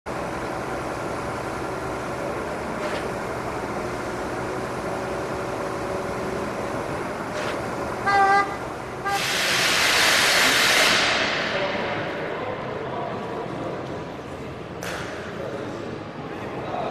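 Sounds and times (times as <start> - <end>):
diesel engine running: 0.1 - 14.8
loud hissing rush: 8.8 - 11.9.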